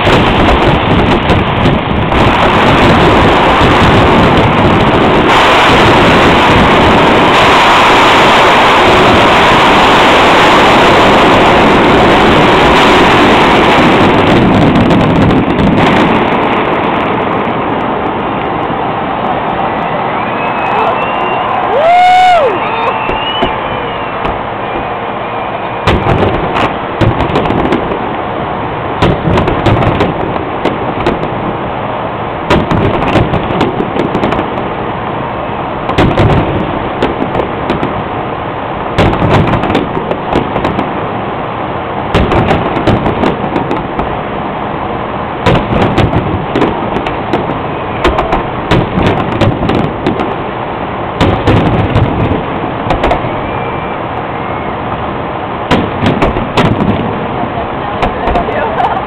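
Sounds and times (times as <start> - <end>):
fireworks bursting: 0.0 - 59.0
steady din: 25.8 - 28.1, 42.1 - 44.2, 45.4 - 50.4, 55.6 - 57.2.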